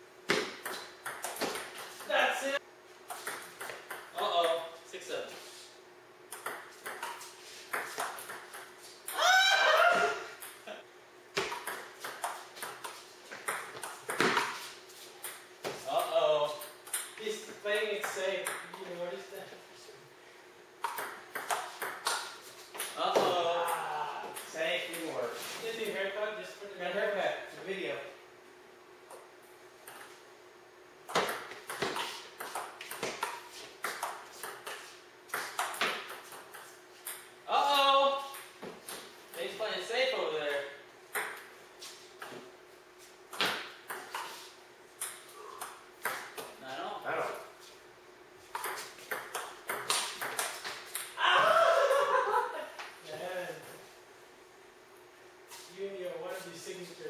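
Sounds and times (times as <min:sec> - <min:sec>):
ping-pong ball bouncing on table: 0:00.3 - 0:01.8, 0:03.1 - 0:04.2, 0:06.3 - 0:08.7, 0:11.4 - 0:14.4, 0:20.8 - 0:22.2, 0:31.1 - 0:37.3, 0:41.2 - 0:41.4, 0:48.6 - 0:51.2
ping-pong ball clicking off paddles: 0:00.3 - 0:02.1, 0:03.1 - 0:04.6, 0:06.3 - 0:09.2, 0:20.8 - 0:23.0, 0:41.1 - 0:41.5, 0:48.5 - 0:51.2.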